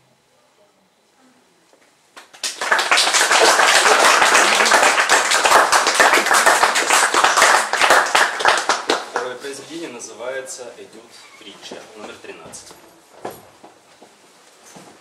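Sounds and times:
audience applause: 0:02.3 - 0:09.4.

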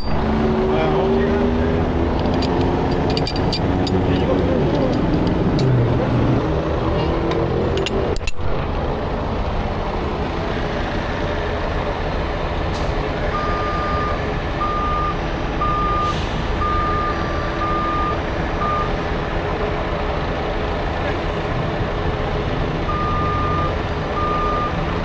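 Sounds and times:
truck reversing alarm beeps: 0:00.0 - 0:00.3, 0:13.3 - 0:19.0, 0:22.8 - 0:25.0
truck engines idling: 0:00.0 - 0:25.0.

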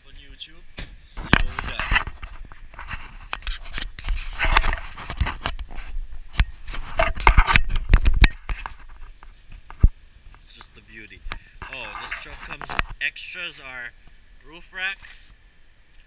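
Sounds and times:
microphone rubbing on fabric: 0:01.0 - 0:09.9.

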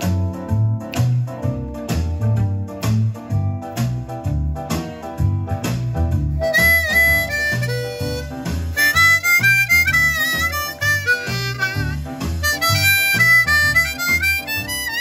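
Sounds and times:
backing band with walking bass: 0:00.0 - 0:15.0
blues harmonica with bent notes: 0:06.2 - 0:15.0.

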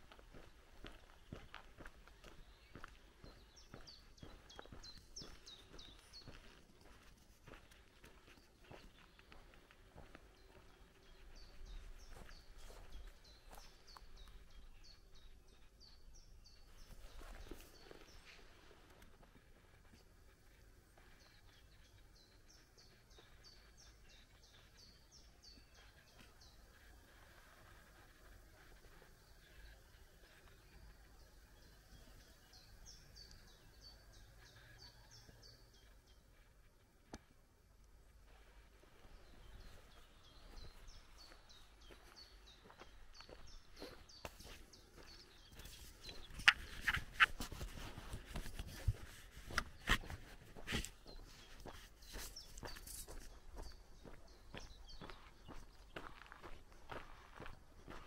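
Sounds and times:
footsteps on asphalt: 0:00.0 - 0:14.3, 0:39.1 - 0:58.0
faint birdsong: 0:00.0 - 0:58.0
songbird singing: 0:00.0 - 0:58.0.

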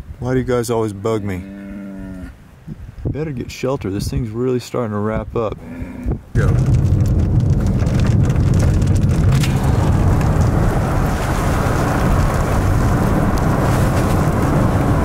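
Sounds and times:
wind and road noise inside car: 0:06.1 - 0:15.0.

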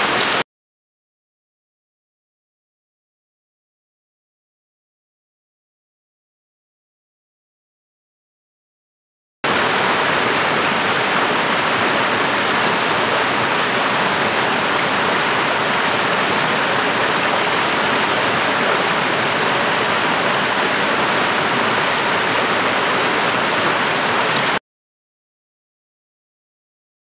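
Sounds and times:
stream rushing over rocks: 0:00.0 - 0:00.4, 0:09.5 - 0:24.6.

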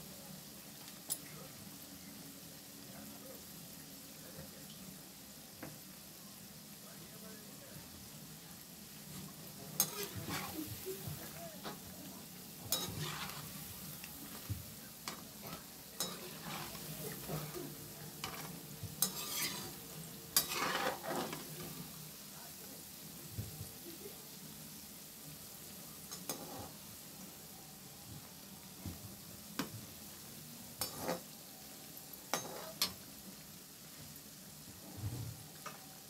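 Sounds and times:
food deep-frying in hot oil: 0:00.0 - 0:36.0
metal spoon scraping pan: 0:09.2 - 0:10.7, 0:12.7 - 0:14.4, 0:15.0 - 0:17.6, 0:18.2 - 0:21.8, 0:26.1 - 0:26.8, 0:30.8 - 0:31.3, 0:32.3 - 0:33.0.

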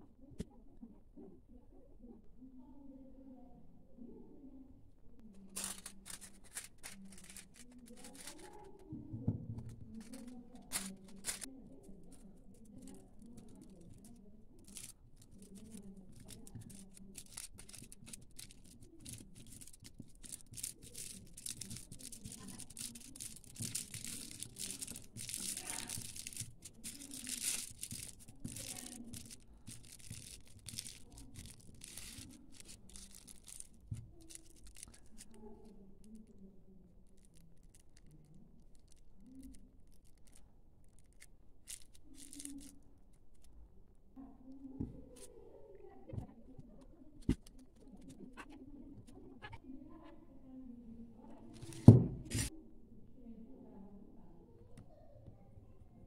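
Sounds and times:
aluminium foil crinkling: 0:05.3 - 0:09.0, 0:09.6 - 0:43.5, 0:51.3 - 0:52.5.

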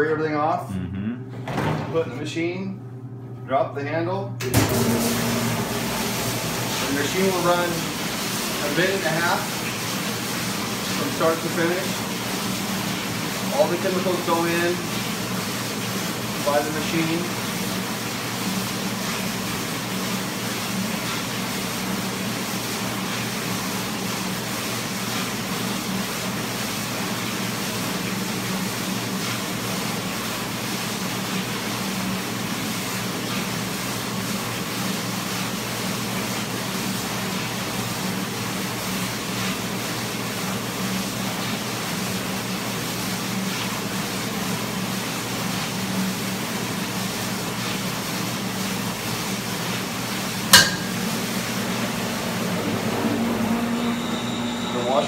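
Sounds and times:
dishwasher pump hum: 0:02.8 - 0:55.0
water spraying inside dishwasher: 0:04.5 - 0:55.0.

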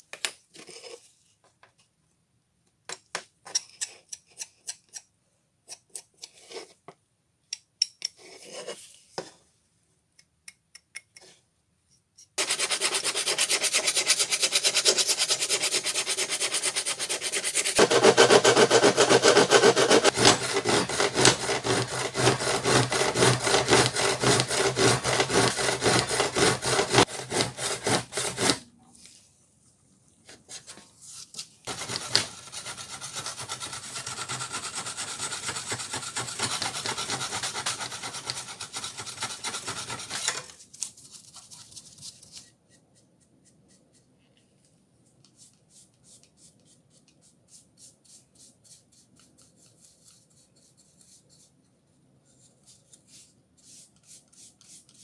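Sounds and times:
abrasive scraping and filing: 0:12.4 - 0:28.6.

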